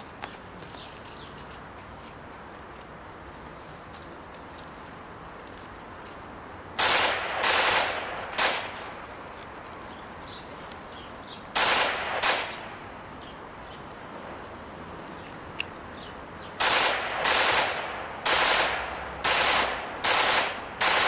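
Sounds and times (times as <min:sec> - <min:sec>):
steady background hiss: 0:00.0 - 0:21.0
automatic gunfire bursts: 0:06.8 - 0:08.9, 0:11.6 - 0:12.7, 0:16.6 - 0:21.0.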